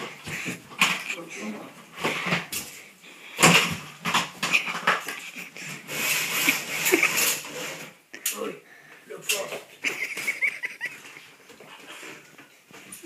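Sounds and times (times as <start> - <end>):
roller blind rustling: 3.4 - 8.0
roller blind knocking: 5.7 - 8.0.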